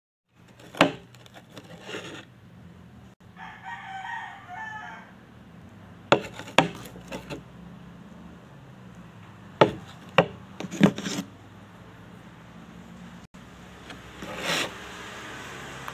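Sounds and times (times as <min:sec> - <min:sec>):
rooster crowing: 0:03.2 - 0:05.4.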